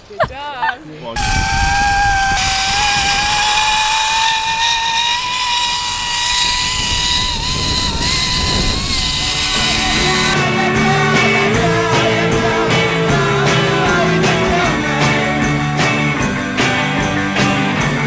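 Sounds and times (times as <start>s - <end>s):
wind rushing on microphone: 1.2s - 10.5s
zipline pulleys whining on cable: 1.2s - 10.6s.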